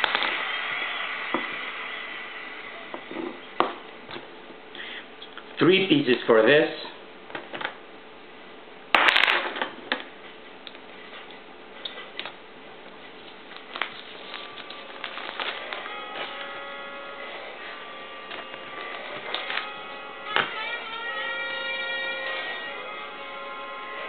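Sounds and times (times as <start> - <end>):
plastic rustling: 12.9 - 16.6.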